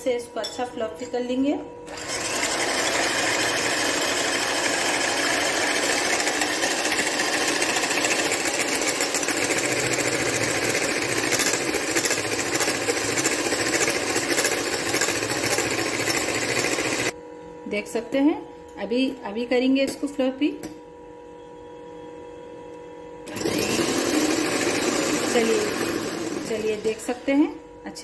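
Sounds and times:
electric hand mixer running: 0:01.9 - 0:17.2, 0:23.3 - 0:27.3.

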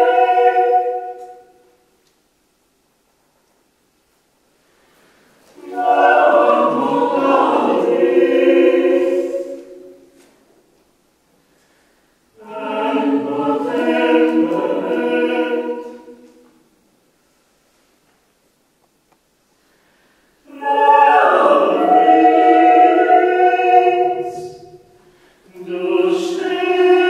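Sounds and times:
mixed choir singing a cappella: 0:00.0 - 0:01.6, 0:05.6 - 0:10.3, 0:12.4 - 0:16.4, 0:20.4 - 0:27.0.

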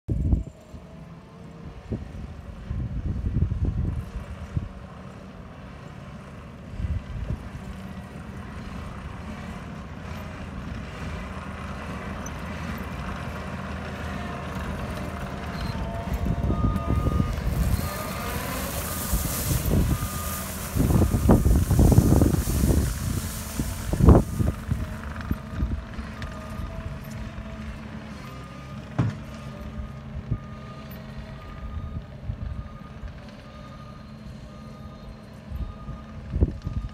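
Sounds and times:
diesel engine hum: 0:00.1 - 0:36.9
gravel being spread: 0:10.2 - 0:27.6
backup alarm beeping: 0:15.5 - 0:24.8.

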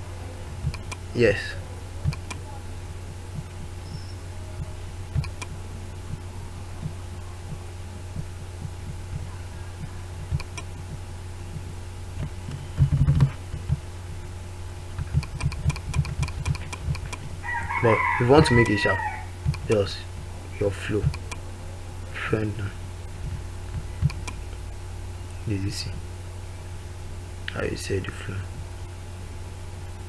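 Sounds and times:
low electrical hum: 0:00.0 - 0:30.0
mouse and keyboard clicks: 0:02.1 - 0:02.4, 0:10.3 - 0:10.7, 0:15.0 - 0:17.3, 0:21.0 - 0:21.4
low thumps: 0:04.6 - 0:14.2.

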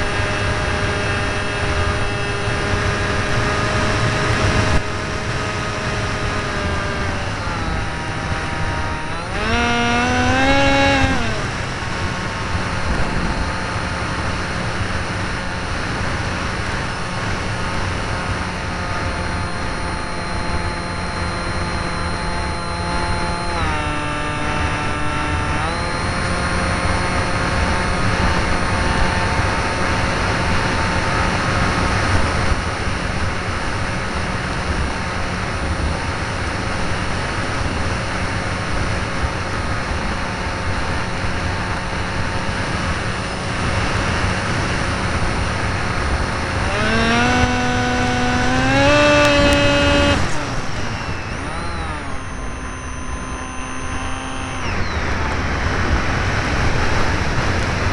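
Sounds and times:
wind rush on microphone: 0:00.0 - 0:19.2, 0:54.6 - 0:57.9
model plane motor whine: 0:00.0 - 0:57.9.

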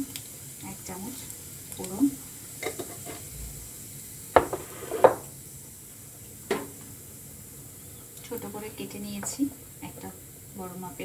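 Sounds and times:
seeds sizzling in hot oil: 0:00.0 - 0:11.0
kitchenware knocking on pan: 0:04.4 - 0:05.3.

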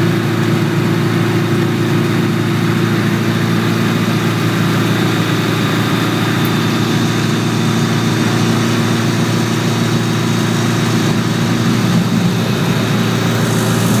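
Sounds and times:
plane piston engine running: 0:03.2 - 0:14.0.

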